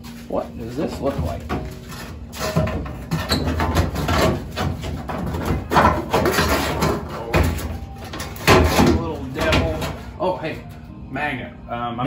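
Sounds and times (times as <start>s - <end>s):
thin steel panel bumping and rubbing: 1.1s - 10.1s.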